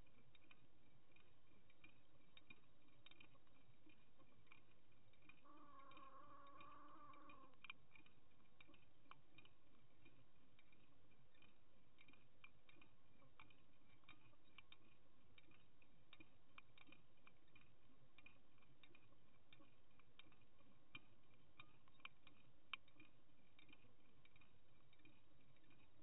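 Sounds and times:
underwater ticking and clicks: 0.0s - 26.0s.

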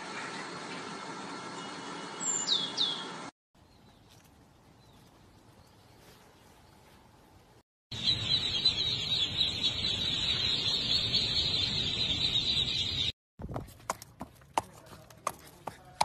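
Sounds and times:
ducklings peeping: 8.0s - 13.1s.

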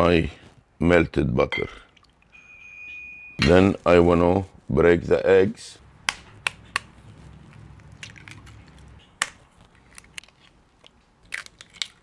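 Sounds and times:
spoon cracking eggshells: 7.8s - 12.0s.

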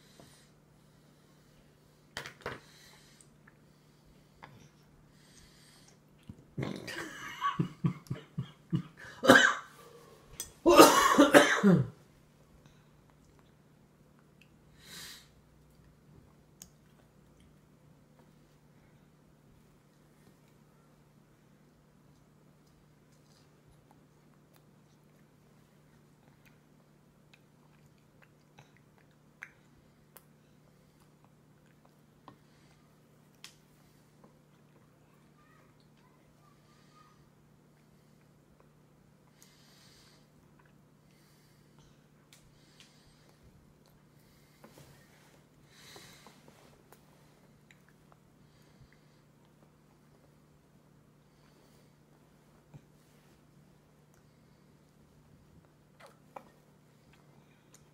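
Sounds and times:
faint low hum: 0.0s - 57.9s
person coughing: 6.6s - 10.0s, 10.6s - 12.0s
child chewing: 15.4s - 18.7s, 19.5s - 36.2s, 37.6s - 57.9s.

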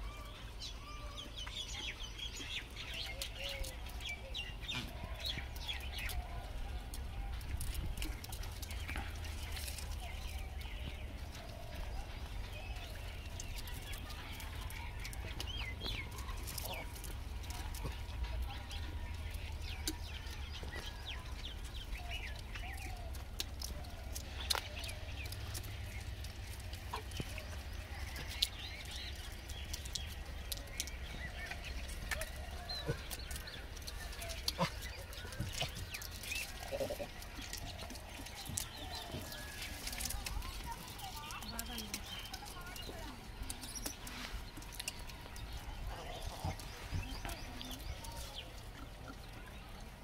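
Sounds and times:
clicks and rustles of grain: 1.0s - 50.0s.

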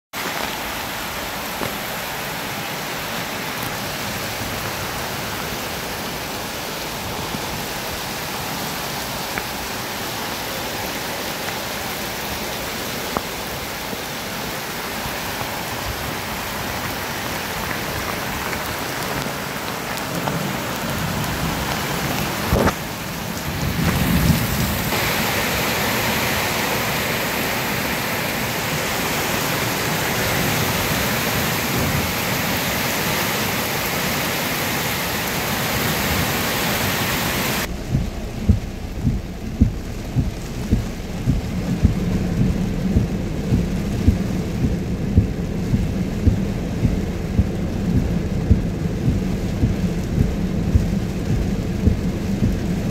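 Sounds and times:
heavy rain hissing: 0.2s - 52.9s
low rumbling: 37.6s - 52.9s.

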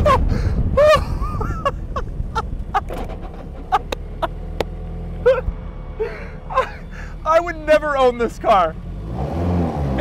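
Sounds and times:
man laughing: 0.0s - 4.6s, 5.2s - 7.3s
car engine running: 1.4s - 10.0s.

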